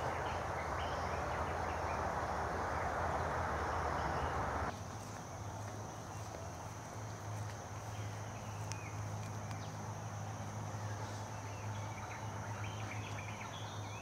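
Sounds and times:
birds chirping: 0.0s - 4.7s
low steady hum: 0.0s - 4.7s
high insect drone: 0.0s - 14.0s.

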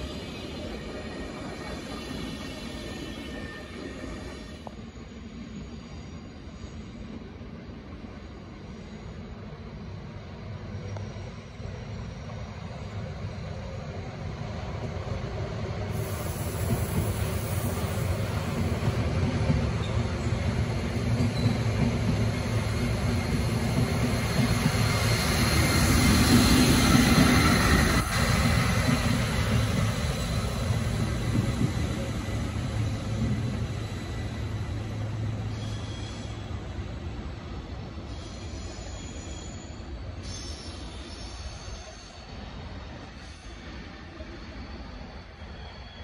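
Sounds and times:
electric locomotive rolling: 10.1s - 46.0s.

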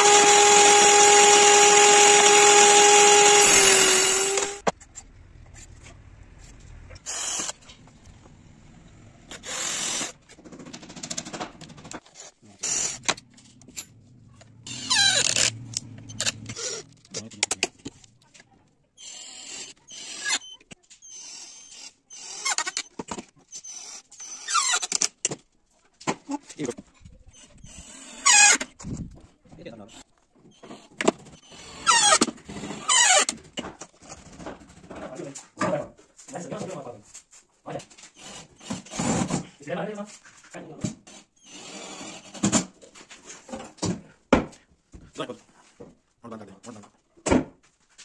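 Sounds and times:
cordless drill driving screws: 0.0s - 4.7s, 7.0s - 7.7s, 9.3s - 10.2s, 12.6s - 13.2s, 14.7s - 16.8s, 19.0s - 22.9s, 27.6s - 28.7s, 31.4s - 33.4s, 38.2s - 39.2s, 41.1s - 42.7s.

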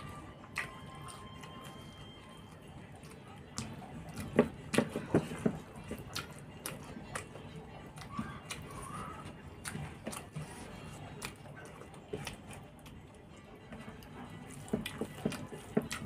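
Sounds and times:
wet chewing: 0.0s - 16.0s
fingers mixing rice on a plate: 2.5s - 13.0s, 13.6s - 16.0s.

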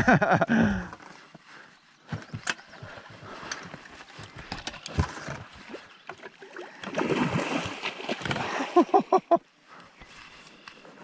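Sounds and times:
fishing gear knocking and clicking: 2.1s - 5.5s.

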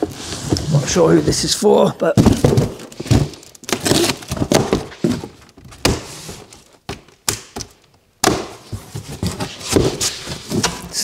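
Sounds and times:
cardboard scraping: 0.0s - 1.6s, 2.2s - 6.7s, 8.6s - 11.0s.

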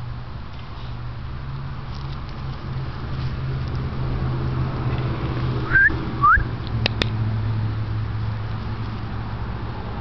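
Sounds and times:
person whistling: 5.7s - 6.5s.

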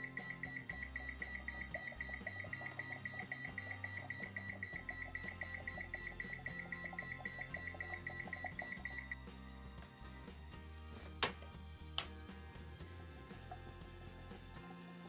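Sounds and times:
rapid high-pitched multimeter beeping: 0.0s - 9.2s.

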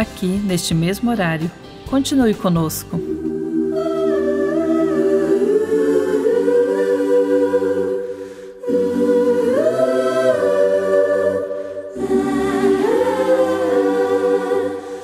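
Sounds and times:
choir singing held notes: 3.0s - 15.0s.

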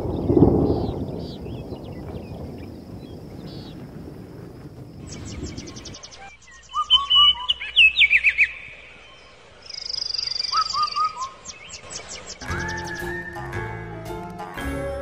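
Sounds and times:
low wind rumble: 0.0s - 6.4s
birds chirping: 0.0s - 15.0s
high bird trill: 9.7s - 15.0s
bird whistling falling notes: 12.0s - 15.0s.

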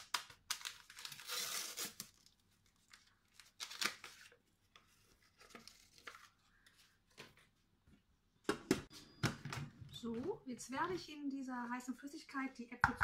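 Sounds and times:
paper sachet tearing: 0.0s - 2.4s, 3.3s - 4.4s
paper crinkling: 0.0s - 7.5s.

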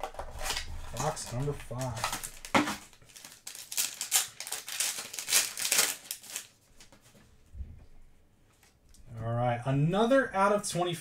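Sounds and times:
plastic wrap crinkling: 0.0s - 7.1s.

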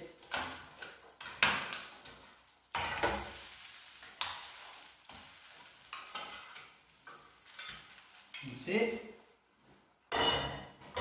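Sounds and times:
fish sizzling in oil: 0.1s - 9.2s
wooden spatula scraping pan: 3.0s - 8.1s.

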